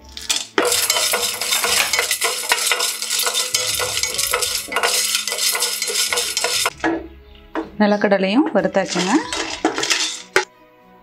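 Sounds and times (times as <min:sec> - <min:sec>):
nuts rattling against metal: 0:00.0 - 0:07.0, 0:08.4 - 0:10.5
spatula scraping pan: 0:00.2 - 0:06.8, 0:08.4 - 0:10.5.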